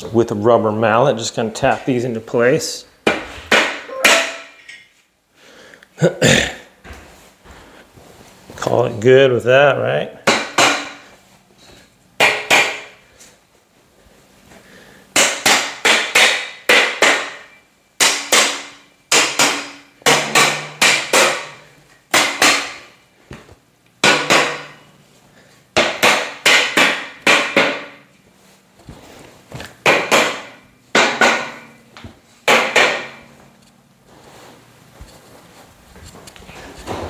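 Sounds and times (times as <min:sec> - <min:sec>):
rubber mallet striking metal frame: 0:03.0 - 0:04.8, 0:15.2 - 0:23.0, 0:24.0 - 0:24.9, 0:25.8 - 0:28.1, 0:29.8 - 0:31.8, 0:32.5 - 0:33.3.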